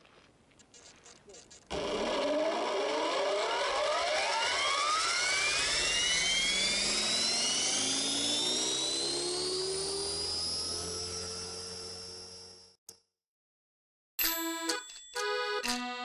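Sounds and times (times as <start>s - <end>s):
model helicopter motor whine: 1.3s - 12.8s.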